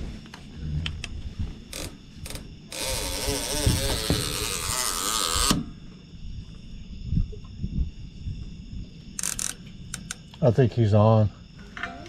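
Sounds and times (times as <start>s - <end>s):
fishing reel clicks: 1.8s - 5.6s, 9.2s - 10.2s
fishing reel whirring: 2.7s - 5.6s, 9.2s - 9.6s.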